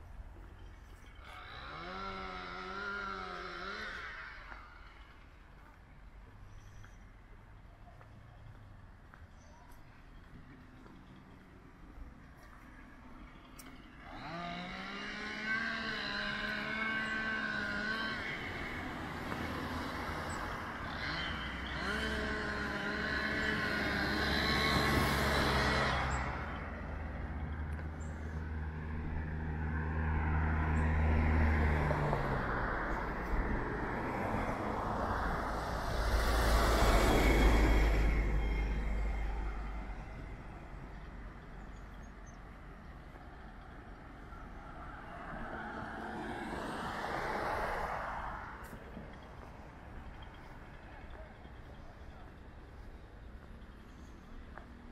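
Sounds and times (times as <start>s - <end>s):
low engine hum: 0.0s - 54.9s
vehicles passing: 0.0s - 54.9s.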